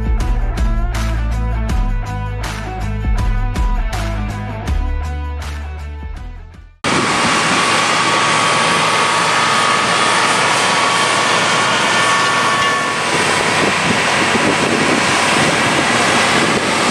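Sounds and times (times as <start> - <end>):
tractor diesel engine under load: 6.8 - 16.9.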